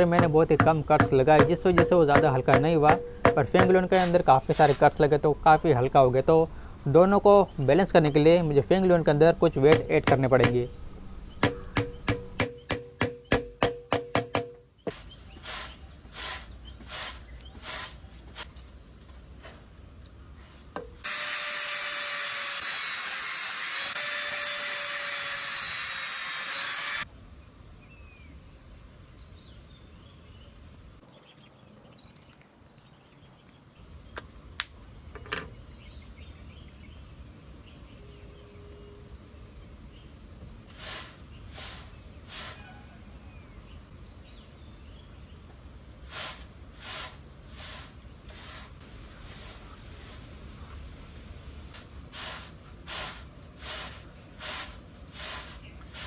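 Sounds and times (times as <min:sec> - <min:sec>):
power tool whining and grinding: 0:21.0 - 0:27.1.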